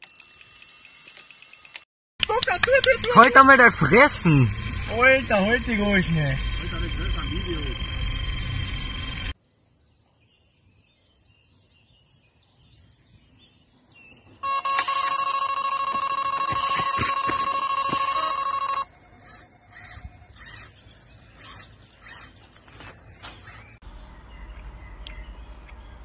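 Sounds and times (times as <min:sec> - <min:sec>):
electronic bite alarm beeping: 0:02.2 - 0:09.4, 0:14.4 - 0:20.8
faint birdsong: 0:04.2 - 0:14.4, 0:18.9 - 0:26.0.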